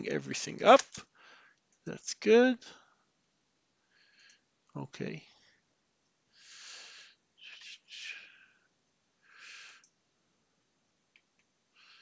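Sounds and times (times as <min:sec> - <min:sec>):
person breathing faintly: 0:01.1 - 0:01.7, 0:03.8 - 0:04.6, 0:06.3 - 0:09.9.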